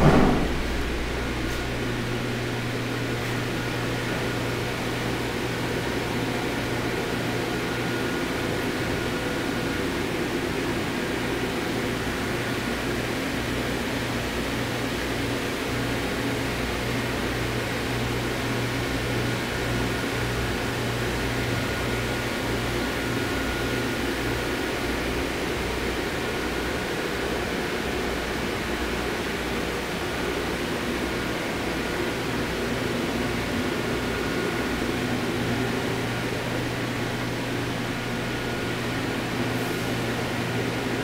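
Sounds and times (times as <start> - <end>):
low electrical hum: 0.0 - 11.3
cooling fans whirring: 0.0 - 41.0.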